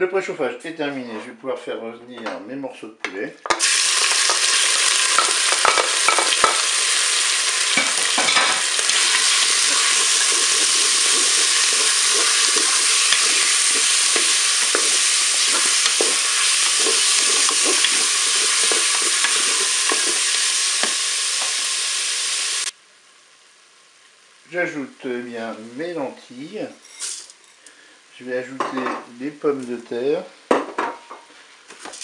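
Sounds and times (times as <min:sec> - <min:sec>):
chicken sizzling in hot oil: 0:03.5 - 0:24.4
wooden spatula scraping bowl: 0:09.0 - 0:21.0.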